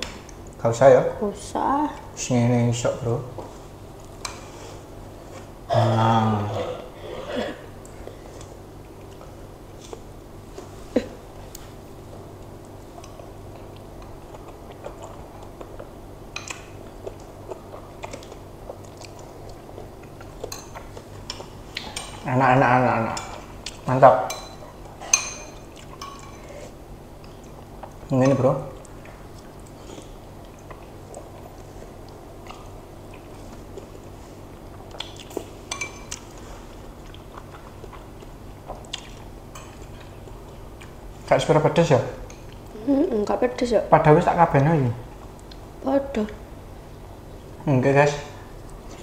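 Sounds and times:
steady low hum: 0:00.0 - 0:49.0
soft chewing: 0:06.5 - 0:22.3, 0:23.0 - 0:41.3, 0:45.0 - 0:46.4.

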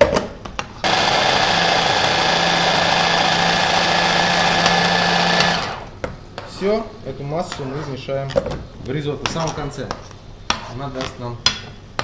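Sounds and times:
electric hand blender running: 0:00.8 - 0:06.0.

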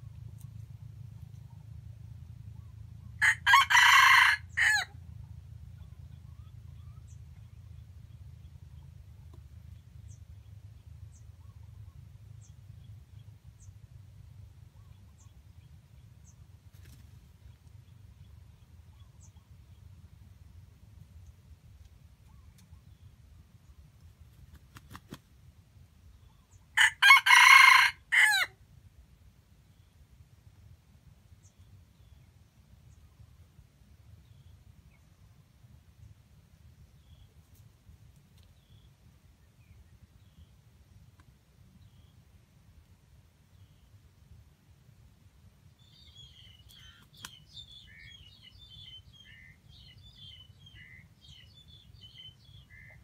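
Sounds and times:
rooster crowing: 0:03.2 - 0:04.9, 0:26.8 - 0:28.6.

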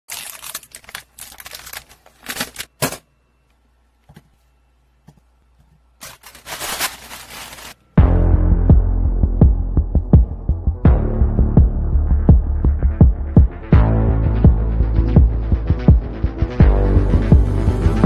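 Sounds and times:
plastic packet crinkling and tearing: 0:00.1 - 0:02.7, 0:06.0 - 0:07.8
music with deep throbbing bass: 0:08.0 - 0:18.0.

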